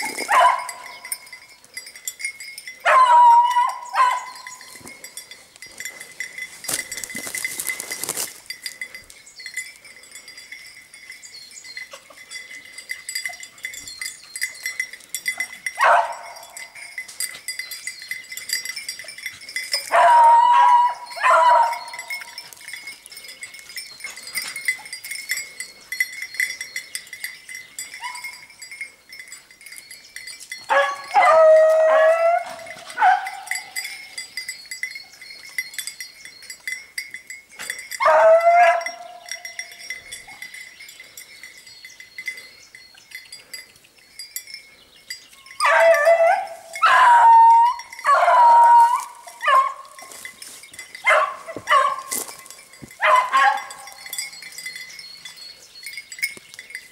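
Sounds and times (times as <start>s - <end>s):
hounds baying: 0.0s - 1.8s, 2.6s - 10.3s, 11.7s - 29.3s, 30.4s - 36.8s, 37.6s - 42.6s, 44.6s - 56.4s.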